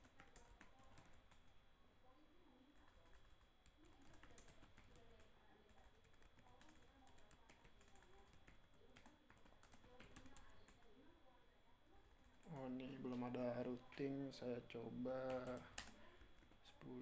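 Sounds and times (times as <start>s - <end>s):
computer keyboard clicking: 0.0s - 1.5s, 2.8s - 10.9s, 15.2s - 16.8s.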